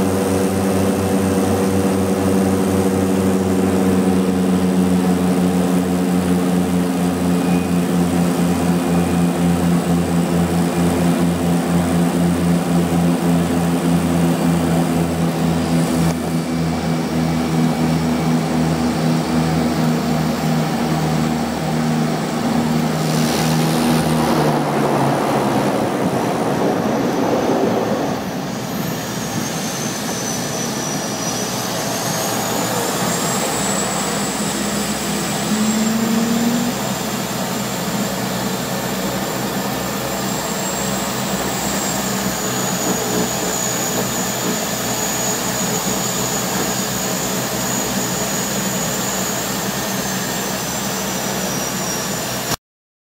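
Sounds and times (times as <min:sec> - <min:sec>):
turboprop engines droning: 0:00.0 - 0:52.6
spray rushing off floats: 0:22.9 - 0:28.0.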